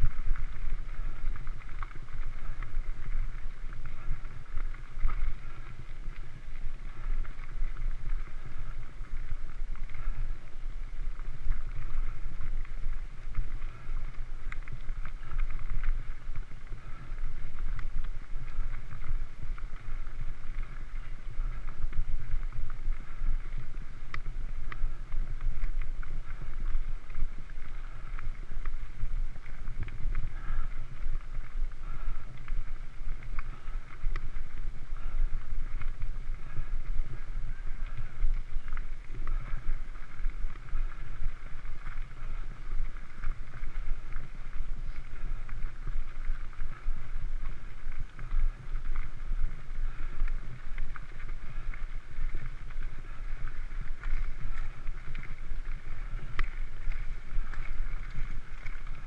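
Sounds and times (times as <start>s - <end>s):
wind on microphone: 0.0s - 59.0s
bike clicks and rattles: 33.1s - 34.4s.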